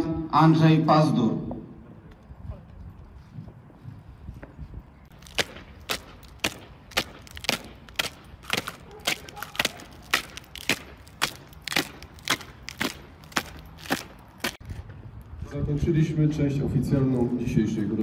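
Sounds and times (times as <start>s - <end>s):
marching boots on stone paving: 4.3s - 15.0s.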